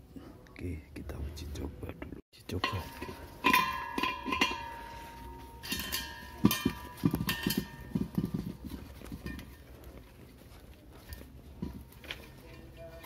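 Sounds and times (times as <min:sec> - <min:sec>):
gas cylinder knocks and clanks: 0:02.6 - 0:09.7.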